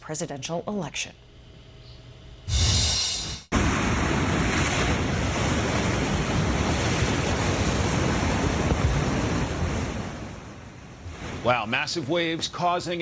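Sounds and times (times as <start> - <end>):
storm surf crashing: 2.5 - 11.9.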